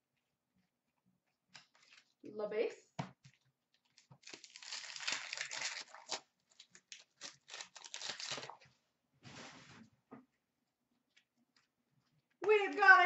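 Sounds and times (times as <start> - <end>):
plastic wrapper tearing and crinkling: 1.5 - 2.2, 3.7 - 8.8.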